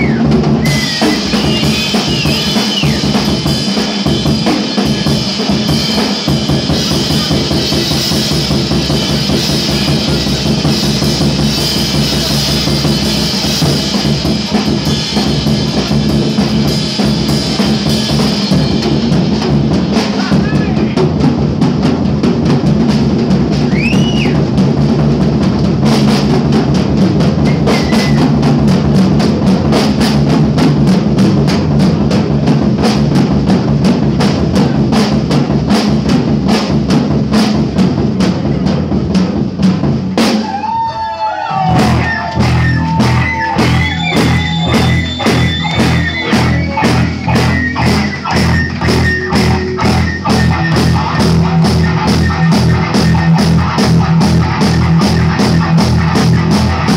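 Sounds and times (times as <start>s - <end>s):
rock drum solo on drum kit: 0.0s - 56.9s
steady drum beat: 0.0s - 56.9s
electric guitar bending notes: 41.8s - 56.9s.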